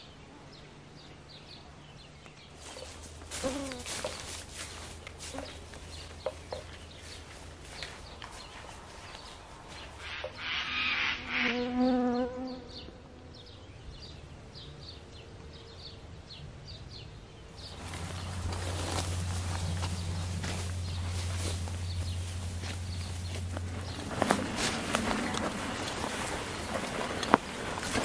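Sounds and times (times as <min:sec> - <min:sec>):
footsteps in grass: 0:02.4 - 0:10.4, 0:17.6 - 0:28.0
loud animal call: 0:10.0 - 0:12.0.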